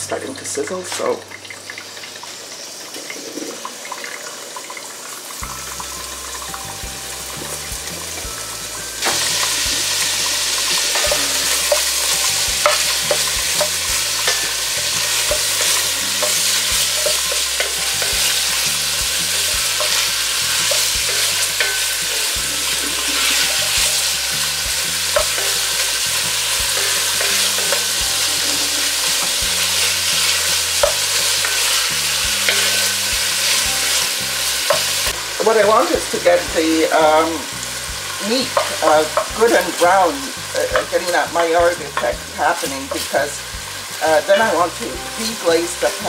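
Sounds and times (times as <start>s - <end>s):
meat sizzling in fat: 0.0s - 46.0s
utensil clicking against pot: 19.4s - 22.4s.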